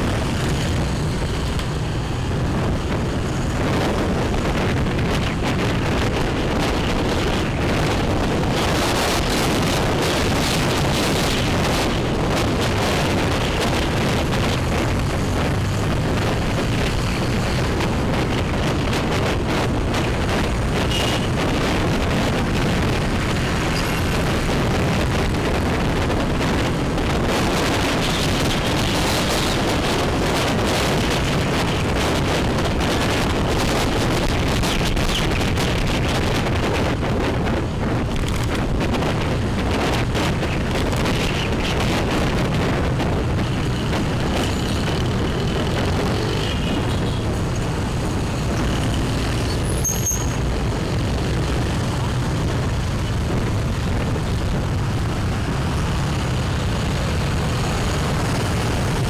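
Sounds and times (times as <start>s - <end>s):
motor traffic: 0.0s - 59.0s
motorbike engine hum: 0.0s - 59.0s.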